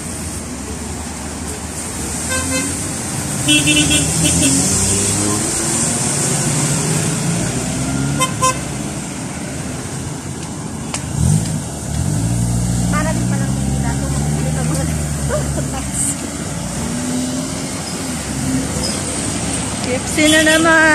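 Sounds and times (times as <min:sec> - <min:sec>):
road traffic passing: 0:00.0 - 0:20.9
car horn toots: 0:03.5 - 0:04.7, 0:08.2 - 0:08.7.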